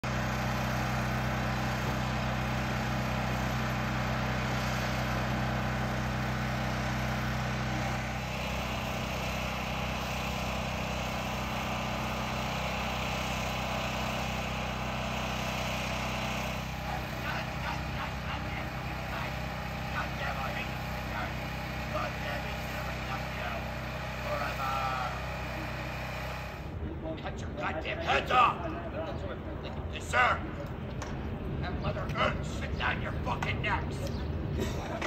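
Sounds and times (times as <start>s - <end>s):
heavy engine idling: 0.0s - 27.0s.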